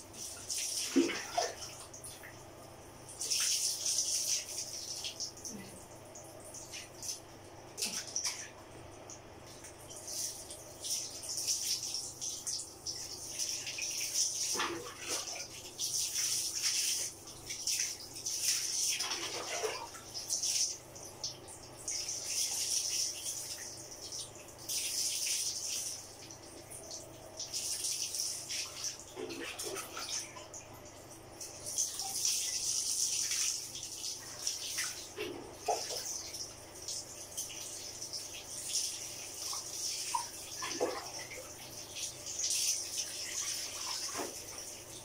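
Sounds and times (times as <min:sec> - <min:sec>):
water pouring over a dog: 0:00.6 - 0:01.8, 0:13.2 - 0:20.8
water splashing on tiled floor: 0:13.2 - 0:20.8.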